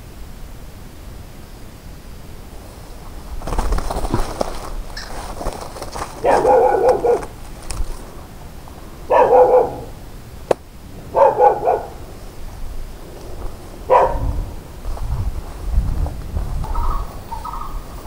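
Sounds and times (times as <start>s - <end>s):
animal barking calls: 5.9s - 10.4s, 11.0s - 14.8s, 16.7s - 18.0s.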